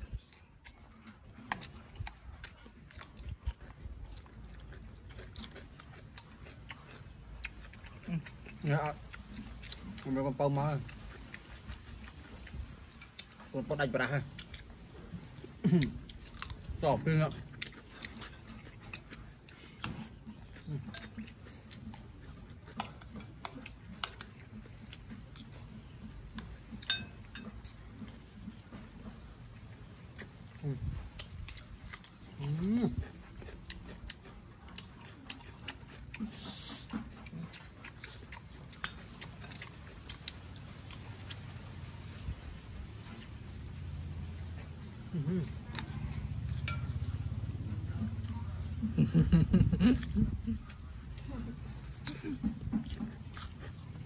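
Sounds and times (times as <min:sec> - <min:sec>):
people chewing and biting: 0:00.0 - 0:54.0.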